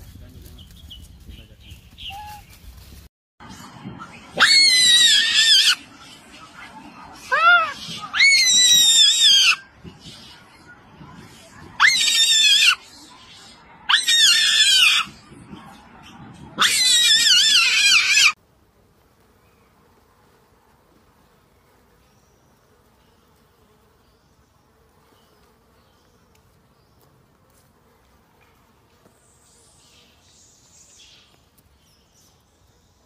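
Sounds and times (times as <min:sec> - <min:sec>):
monkey screaming: 0:04.4 - 0:05.8, 0:07.2 - 0:09.6, 0:11.8 - 0:12.8, 0:13.9 - 0:15.1, 0:16.6 - 0:18.4.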